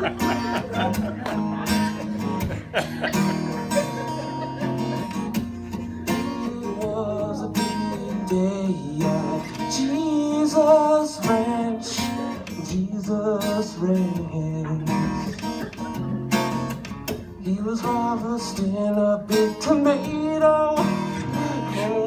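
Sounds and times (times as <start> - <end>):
acoustic guitar strumming: 0.0 - 22.0
person singing: 6.1 - 15.0, 17.4 - 22.0.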